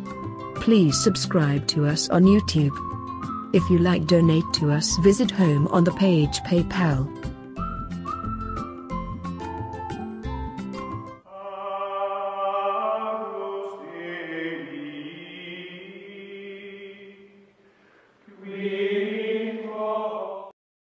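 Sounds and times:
slow music of held chords: 0.0 - 0.6, 7.2 - 11.3.

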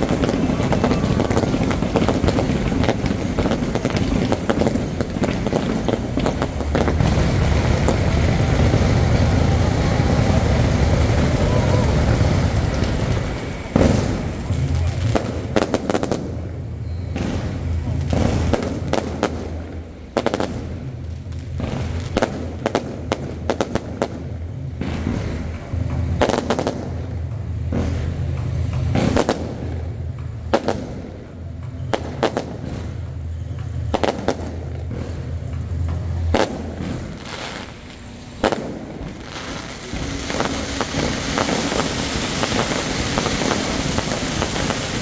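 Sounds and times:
low rumble: 0.0 - 15.6
fireworks bangs: 0.0 - 45.0
fireworks crackling: 0.0 - 45.0.

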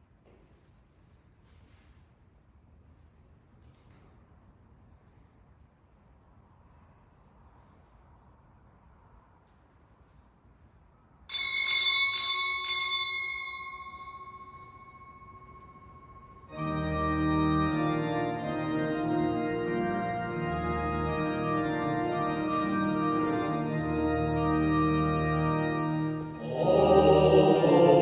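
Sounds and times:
small church bell ringing: 11.3 - 28.0
church organ chords: 14.5 - 28.0.

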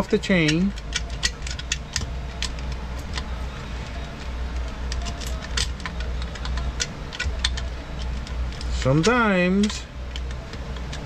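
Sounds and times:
metal chain clicking: 0.0 - 11.0
steady low hum: 0.0 - 11.0.

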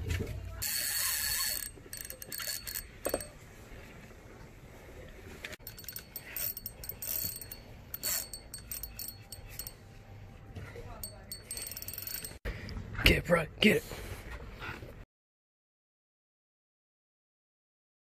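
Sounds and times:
fishing reel gears whirring: 0.6 - 3.4, 5.6 - 9.8, 11.0 - 12.4.

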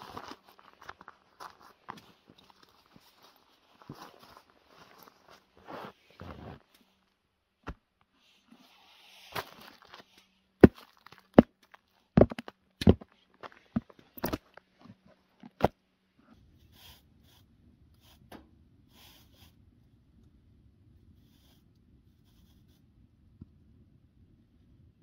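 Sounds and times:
rustling of snow and clothing: 0.0 - 7.0
boots knocking and thudding: 10.6 - 15.7.

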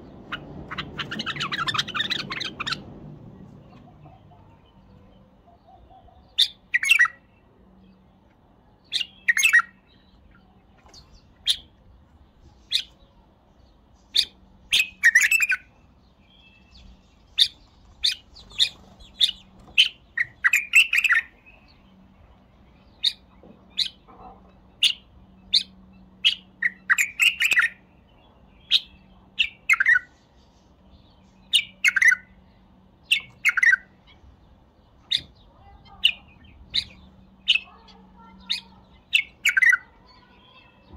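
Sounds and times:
bird singing whistled notes: 24.8 - 27.8.

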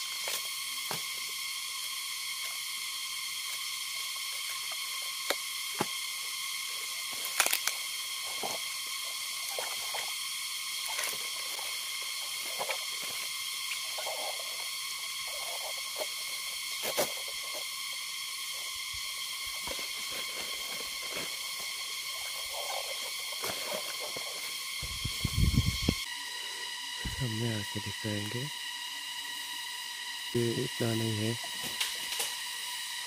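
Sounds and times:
high insect drone: 0.0 - 33.0
bamboo shoots knocking and rustling: 7.1 - 8.7.

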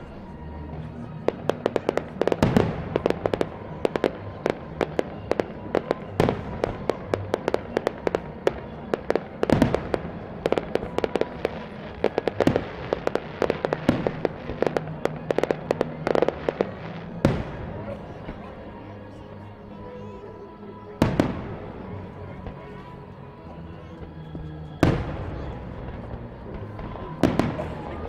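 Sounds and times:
fireworks bangs and pops: 1.0 - 18.4, 23.9 - 28.0.

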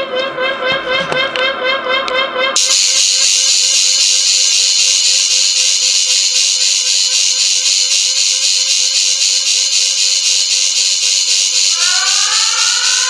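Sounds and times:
electronic buzzing machine: 0.0 - 13.0.

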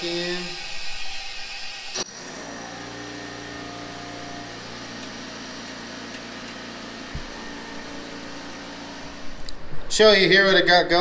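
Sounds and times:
low machine hum: 2.6 - 10.0.

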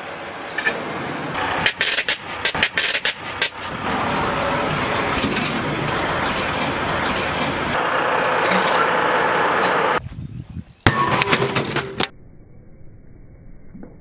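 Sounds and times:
train rumbling on track: 0.0 - 10.0.

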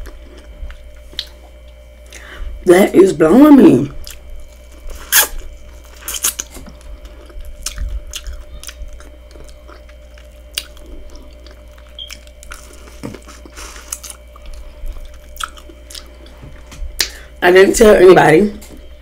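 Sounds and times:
person chewing: 0.0 - 2.3, 4.0 - 17.3
wet mouth clicks and smacks: 7.6 - 10.8, 11.4 - 16.1.

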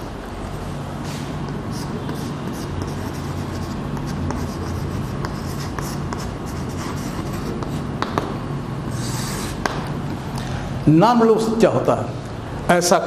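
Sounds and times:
chalk scratching on blackboard: 0.0 - 8.3, 8.9 - 9.8
chalk tapping: 0.0 - 10.2.

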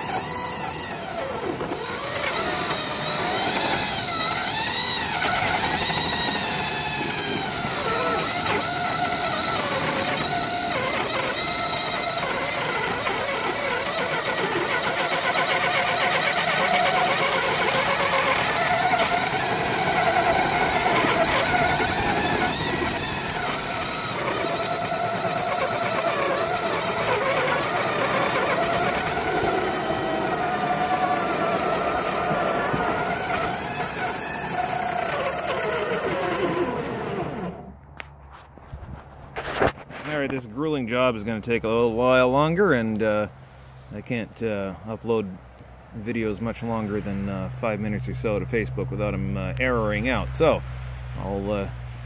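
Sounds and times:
plow pushing through wet snow: 0.0 - 37.7
motor whine of rail vehicle: 0.0 - 40.4.

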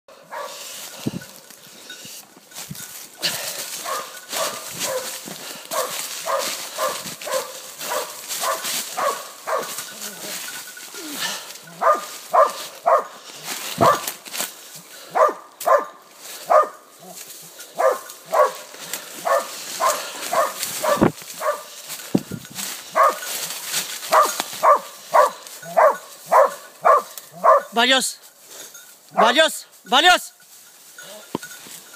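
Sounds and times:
dog barking: 0.2 - 0.7, 3.8 - 10.0, 11.7 - 13.2, 13.8 - 14.2, 15.1 - 21.8, 22.9 - 23.3, 24.1 - 27.8
rustle of leaves and brush: 0.2 - 31.9.

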